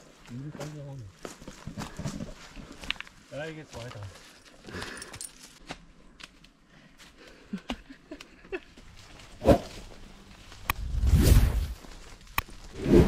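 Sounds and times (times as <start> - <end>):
footsteps in dry leaves: 8.8 - 12.8.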